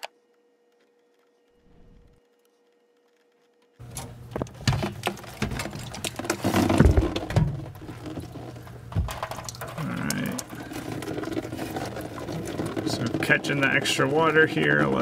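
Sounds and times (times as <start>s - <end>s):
plastic bucket knocking: 4.3s - 15.0s
water splashing into bucket: 4.4s - 15.0s.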